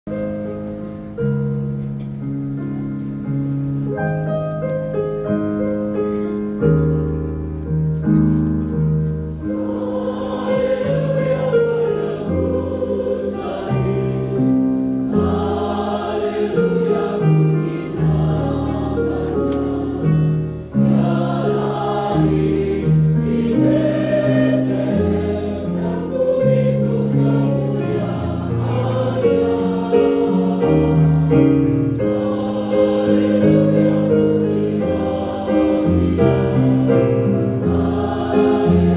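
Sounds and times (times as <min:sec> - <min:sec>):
keyboard accompaniment: 0:00.1 - 0:38.9
mixed choir singing a hymn: 0:09.3 - 0:38.9.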